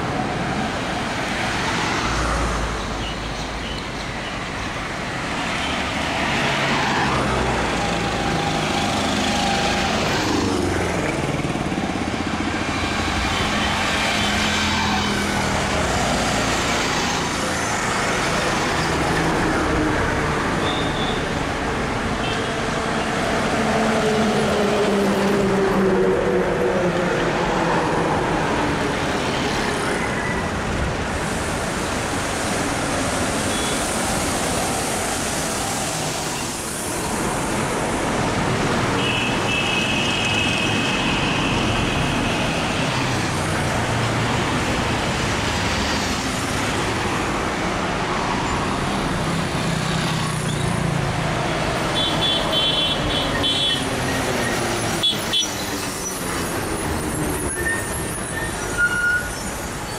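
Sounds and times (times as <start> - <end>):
cars and motorbikes passing: 0.0 - 58.7
vehicle horn: 39.0 - 41.7.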